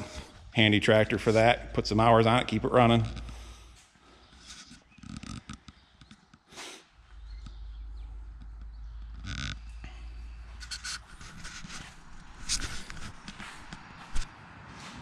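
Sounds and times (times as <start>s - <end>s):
footsteps on concrete: 10.4s - 15.0s.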